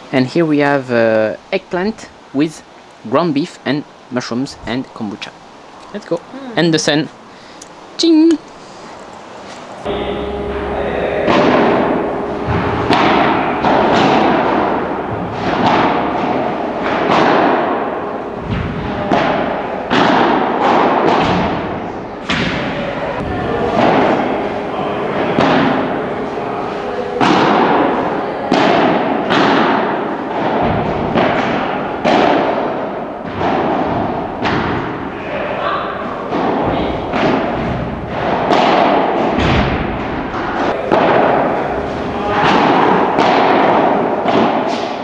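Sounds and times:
racket hitting ball: 9.8s - 35.0s, 36.3s - 40.0s, 40.6s - 45.0s.

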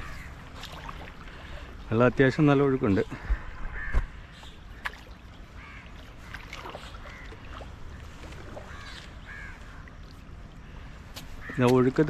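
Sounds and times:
water lapping against boat hull: 0.0s - 12.0s
small splashes and drips: 0.2s - 2.0s, 4.7s - 12.0s.

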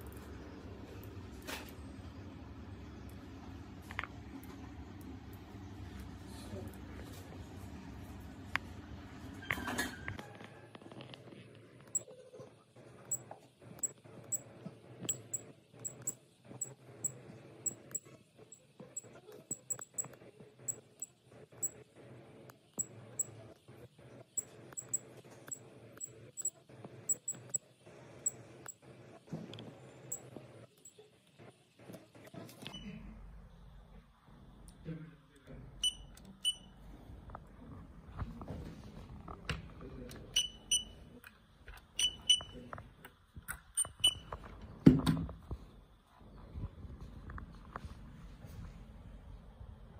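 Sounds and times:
fingertip tapping touchscreen: 15.1s - 18.0s, 19.0s - 20.8s
short high electronic beeps: 19.0s - 20.1s, 24.8s - 25.0s, 26.0s - 27.6s.

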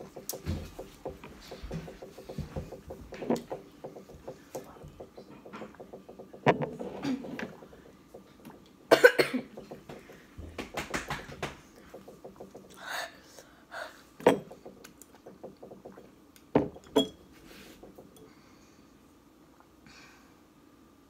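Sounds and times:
person coughing: 8.9s - 9.6s.

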